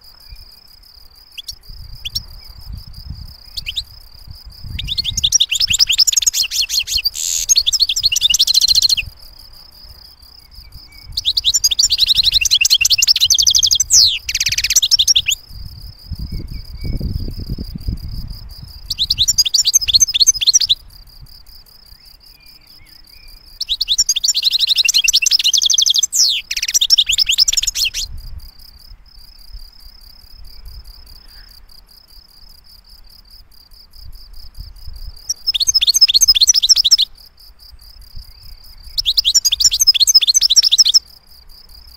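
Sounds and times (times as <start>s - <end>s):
bird twittering song: 0.0s - 21.0s, 21.8s - 28.3s, 34.6s - 37.2s, 38.0s - 41.1s.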